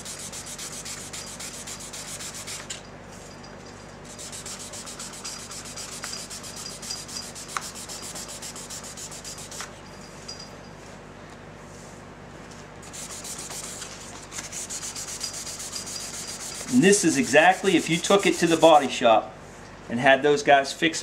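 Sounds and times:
sandpaper rubbing by hand: 0.0 - 2.7, 4.1 - 9.7, 12.8 - 18.9.

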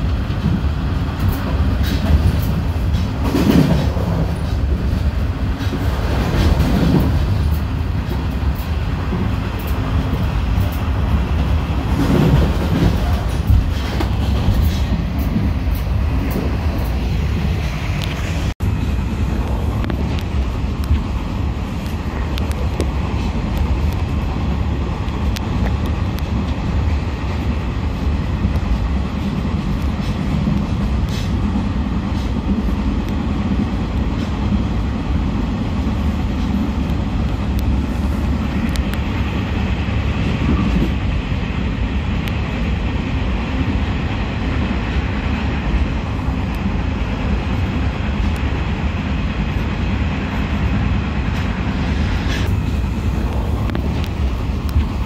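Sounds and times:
faint clicks of train: 0.0 - 55.0
passenger train rumbling: 0.0 - 55.0.

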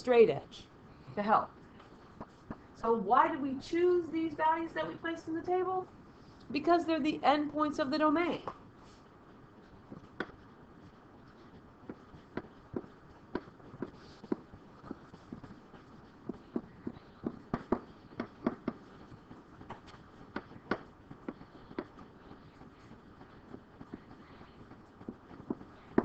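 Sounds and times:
pen tapping while writing: 11.8 - 26.0.

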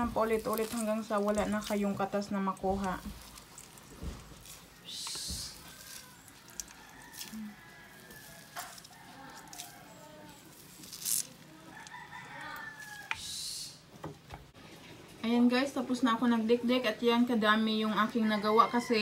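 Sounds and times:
wet hissy squishes: 0.0 - 11.5
hand squeezing wet leaves: 0.0 - 13.6.

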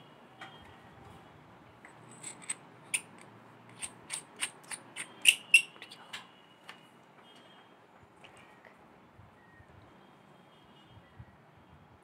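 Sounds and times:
small metal parts clicking: 1.9 - 6.0.

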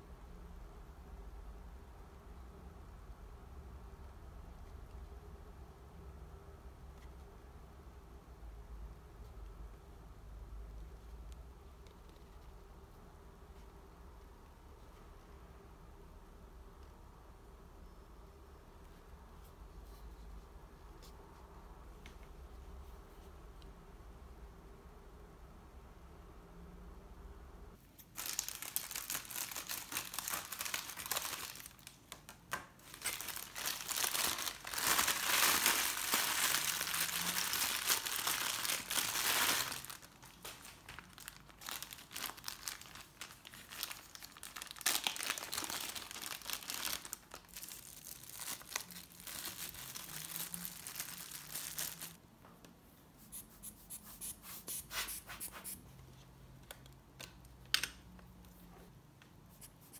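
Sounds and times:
plastic bag crinkling: 28.1 - 52.2.

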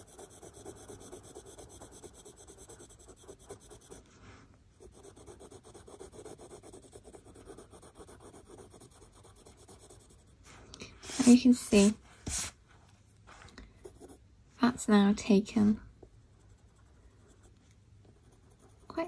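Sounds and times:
coloured pencil scratching on paper: 0.0 - 4.1, 4.7 - 12.5, 13.8 - 14.2, 16.3 - 19.0.

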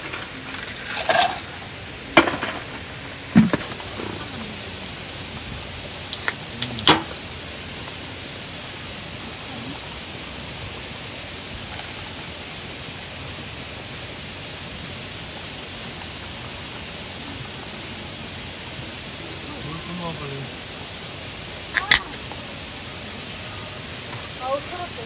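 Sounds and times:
steady even hiss: 0.0 - 25.0
beer can cracked open: 0.6 - 1.4, 6.2 - 7.1, 21.7 - 22.2.

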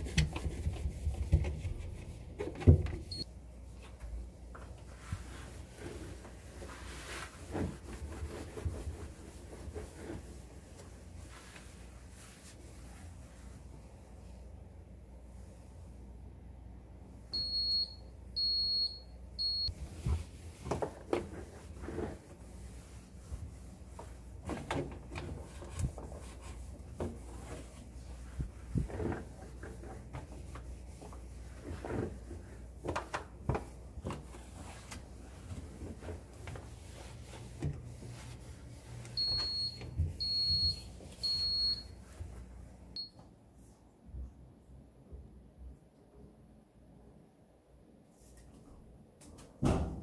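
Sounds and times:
damp cloth wiping: 4.8 - 14.4, 19.7 - 42.7
refrigerator alarm beeping: 17.4 - 19.7, 39.2 - 42.0.

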